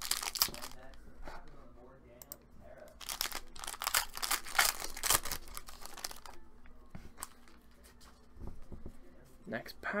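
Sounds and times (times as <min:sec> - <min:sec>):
plastic wrapper crinkling and tearing: 0:00.0 - 0:00.9, 0:03.0 - 0:06.4.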